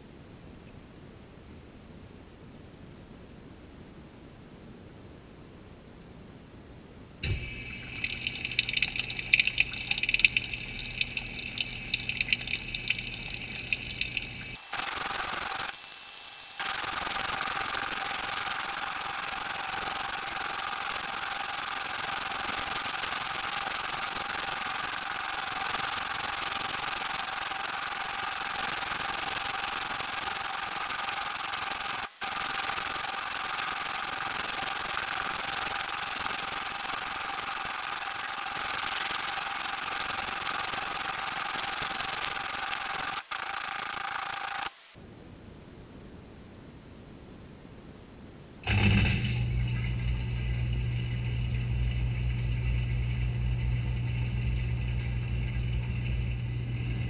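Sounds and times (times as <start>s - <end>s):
washing machine churning: 7.2s - 14.6s.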